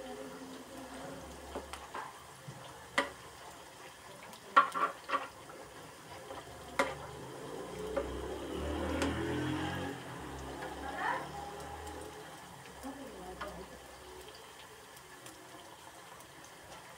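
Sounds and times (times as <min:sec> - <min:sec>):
fries sizzling in hot oil: 0:00.0 - 0:16.9.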